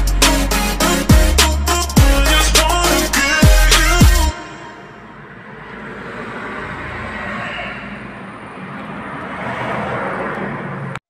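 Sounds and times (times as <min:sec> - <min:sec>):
road traffic hum: 0:00.0 - 0:11.0.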